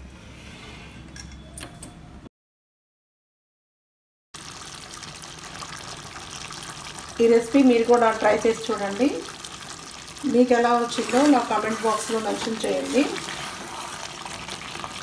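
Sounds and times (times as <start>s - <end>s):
wet ladling sounds: 9.2s - 15.0s.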